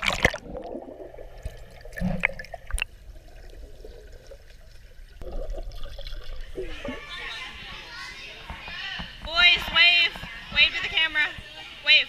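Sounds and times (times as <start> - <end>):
bubbling gurgles: 0.0 - 7.1.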